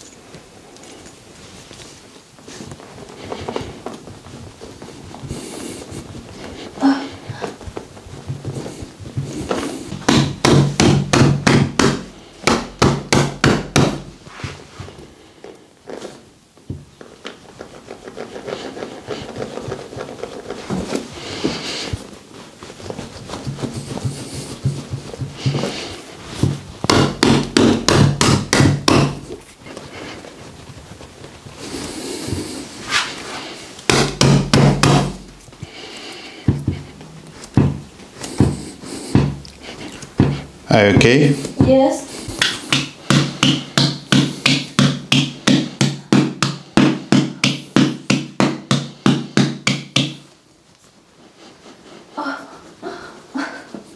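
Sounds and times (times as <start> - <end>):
rubbing and handling: 0.0 - 53.9
mallet tapping bare foot: 8.2 - 14.1, 23.4 - 29.4, 33.9 - 35.5, 36.5 - 40.4, 41.0 - 50.3.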